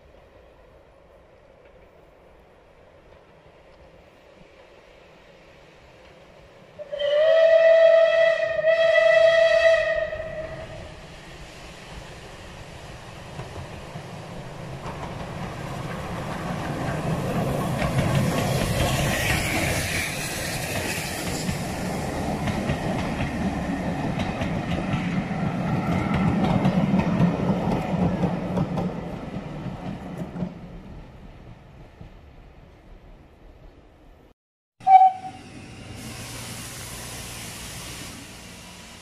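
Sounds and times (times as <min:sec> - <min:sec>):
steam train running past on rails: 0:00.0 - 0:32.9, 0:34.8 - 0:39.0
steam locomotive whistle blasts: 0:06.8 - 0:10.9, 0:34.8 - 0:39.0.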